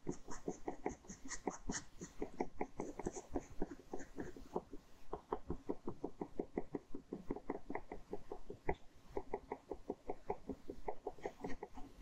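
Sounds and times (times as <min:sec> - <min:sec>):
ballpoint pen scratching on paper: 0:00.0 - 0:04.9.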